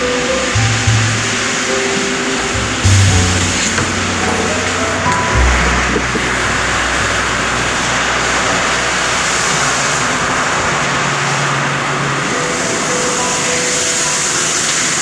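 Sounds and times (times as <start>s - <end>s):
coolant spraying hiss: 6.1s - 15.0s.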